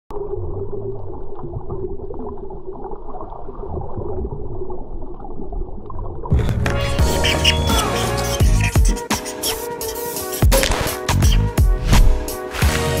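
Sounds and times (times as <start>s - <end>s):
muffled underwater water movement: 0.1s - 6.9s
underwater bubbles: 0.1s - 6.9s.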